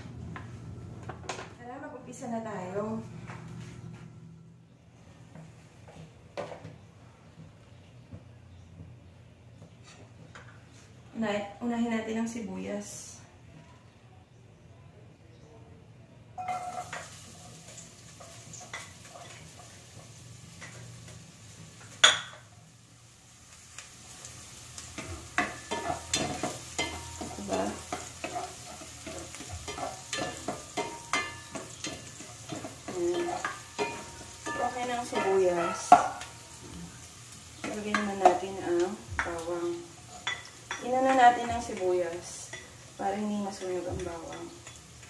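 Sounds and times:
onion sizzling in oil: 16.4s - 45.0s.

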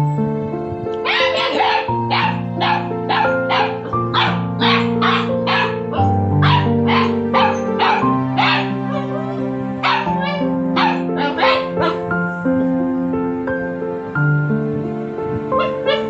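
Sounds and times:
background music: 0.0s - 16.0s
dog barking: 1.0s - 9.2s, 9.8s - 12.1s, 15.6s - 16.0s.

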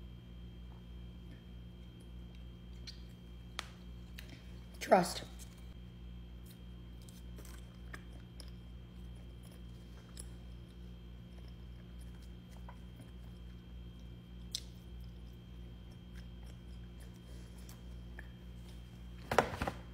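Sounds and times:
person chewing food: 6.4s - 18.8s.

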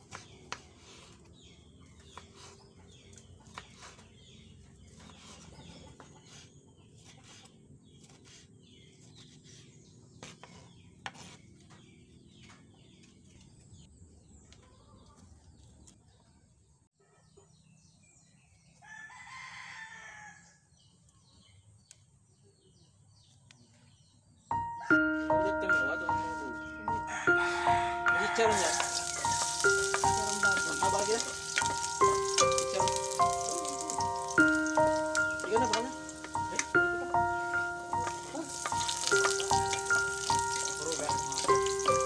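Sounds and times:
rooster crowing: 18.8s - 20.7s, 26.9s - 30.4s.

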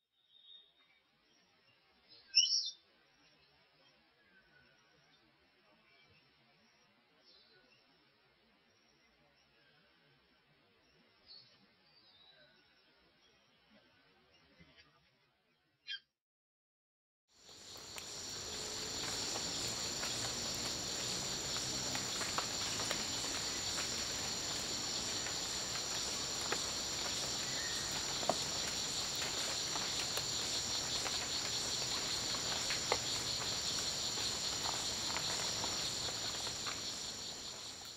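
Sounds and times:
shrill insect chorus: 17.5s - 37.9s.

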